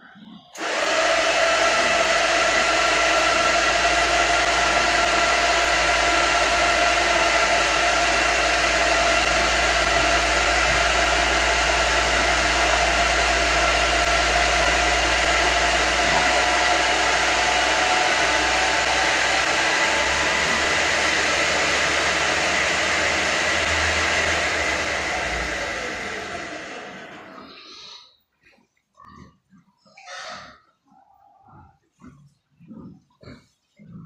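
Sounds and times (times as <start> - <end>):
electric motor whine: 0.6 - 27.3
feed rushing through pipe: 0.6 - 27.4.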